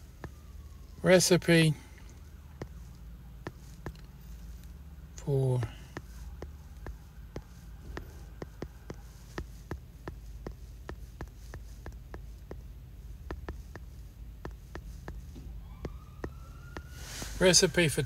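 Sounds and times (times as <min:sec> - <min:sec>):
steady low hum: 0:00.0 - 0:18.0
fingertip taps on touchscreen: 0:06.0 - 0:15.2.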